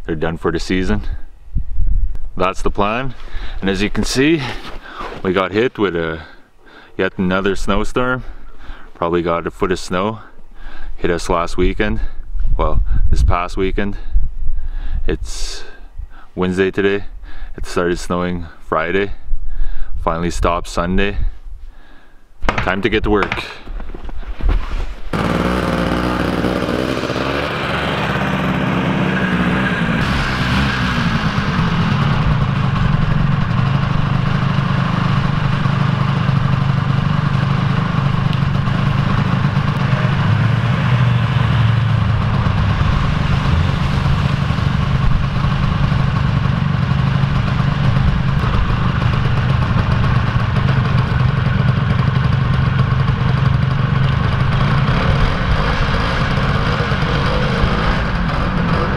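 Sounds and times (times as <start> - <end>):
snowmobile engine starting and revving: 3.4 - 6.4, 24.6 - 58.9.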